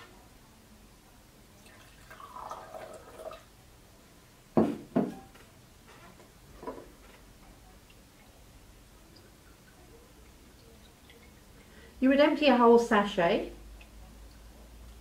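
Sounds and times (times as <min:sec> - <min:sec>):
water pouring into a glass: 0:01.5 - 0:03.5
jug knocking on a desk: 0:04.6 - 0:05.2.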